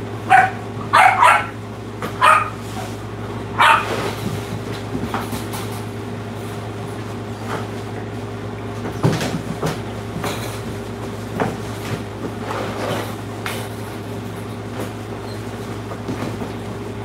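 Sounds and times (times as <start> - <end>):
steady low hum: 0.0 - 17.0
dog barking: 0.3 - 1.6, 2.2 - 2.9, 3.5 - 4.1.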